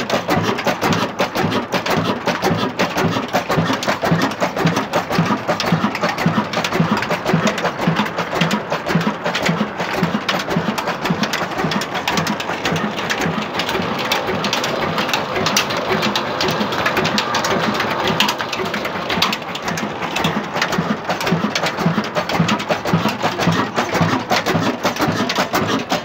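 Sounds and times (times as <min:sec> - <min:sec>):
slow diesel engine knocking: 0:00.0 - 0:26.0.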